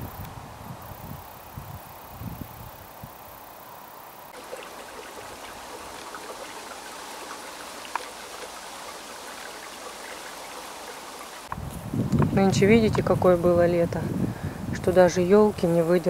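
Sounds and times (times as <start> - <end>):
stream trickling: 0.9 - 16.0.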